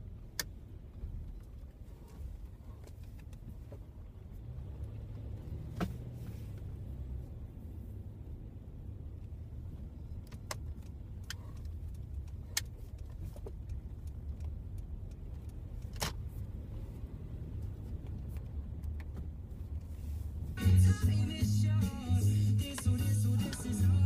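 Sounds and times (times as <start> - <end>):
car interior engine rumble: 0.0 - 24.0
light clicks and rattles: 9.2 - 16.5
loud music: 20.6 - 24.0.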